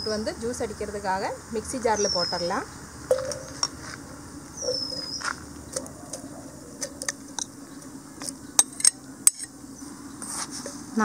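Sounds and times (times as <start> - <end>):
outdoor background noise: 0.0 - 11.0
high falling chirp: 1.4 - 8.8
fruit tapping steel jar: 3.1 - 3.8.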